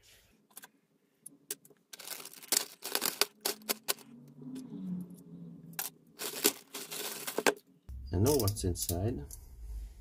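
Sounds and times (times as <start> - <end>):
plastic mailer bag crinkling: 1.9 - 4.1, 5.8 - 7.6.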